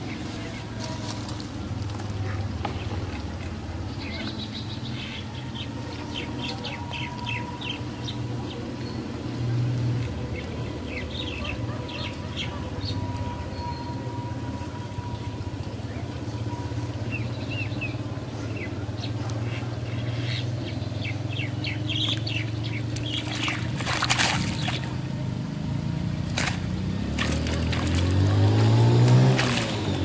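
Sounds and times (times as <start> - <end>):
birds chirping: 3.7 - 25.2
water splashing: 22.1 - 25.1, 26.1 - 30.0.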